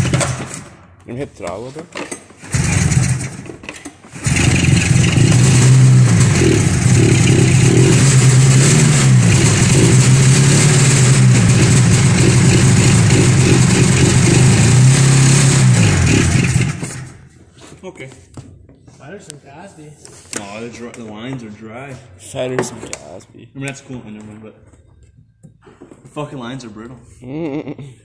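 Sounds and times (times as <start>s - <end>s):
snowmobile engine revving: 4.2s - 17.1s.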